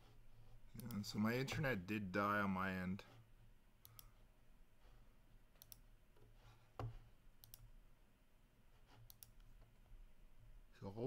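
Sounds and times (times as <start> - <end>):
computer mouse clicks: 0.8 - 1.1, 3.8 - 4.2, 5.6 - 5.9, 6.8 - 7.7, 9.0 - 9.7.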